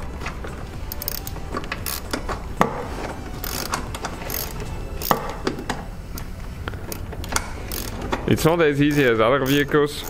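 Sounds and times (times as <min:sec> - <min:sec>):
hand ratchet clicking: 0:00.9 - 0:02.8, 0:03.4 - 0:08.3, 0:08.9 - 0:10.0.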